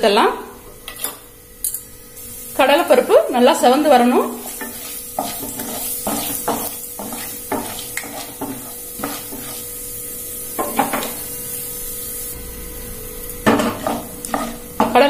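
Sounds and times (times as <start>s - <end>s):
lentils sizzling in oil: 2.1s - 12.4s, 13.2s - 15.0s
wooden spatula scraping pan: 4.2s - 9.7s, 13.6s - 15.0s.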